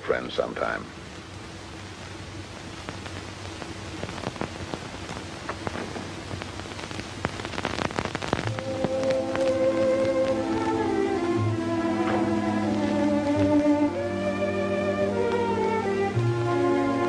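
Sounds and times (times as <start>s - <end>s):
rain pattering: 0.0s - 17.0s
film score music with held notes: 8.4s - 17.0s.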